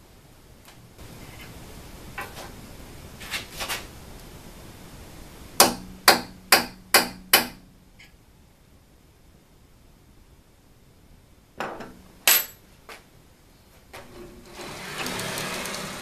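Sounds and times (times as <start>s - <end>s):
hammer striking metal plates: 5.6s - 7.6s, 11.6s - 12.6s.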